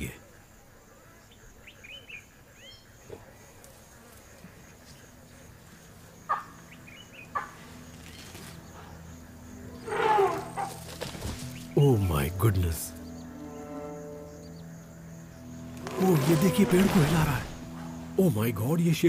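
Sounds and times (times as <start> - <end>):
loud harsh animal call: 9.8 - 10.8.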